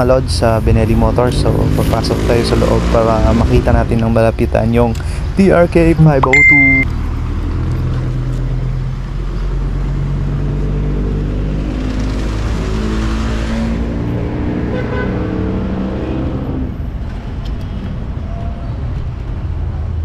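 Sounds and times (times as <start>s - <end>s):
vehicle passing by: 0.5s - 3.8s, 7.0s - 18.2s.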